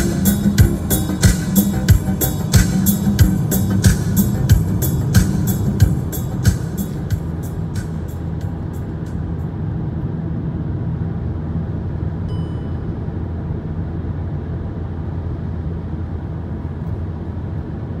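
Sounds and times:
car engine rumble: 0.0s - 18.0s.

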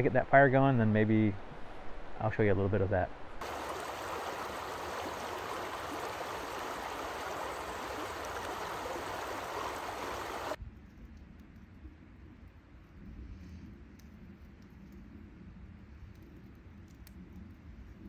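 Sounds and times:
river water rushing over rocks: 3.4s - 10.6s.

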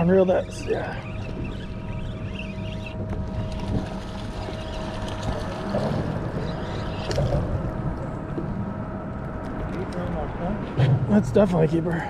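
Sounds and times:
water lapping at boat: 0.0s - 9.6s
steady low hum: 0.0s - 12.0s
wind on microphone: 0.7s - 8.3s.

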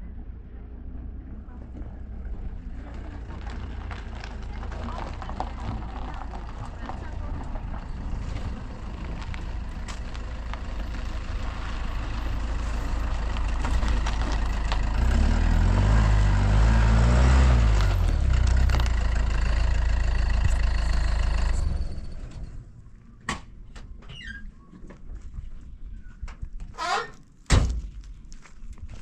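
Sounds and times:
vehicle engine running: 0.0s - 22.8s.

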